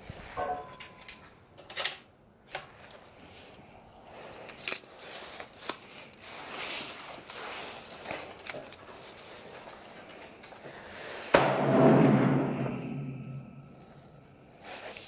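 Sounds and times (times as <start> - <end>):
paper rustling and sliding: 5.0 - 9.7.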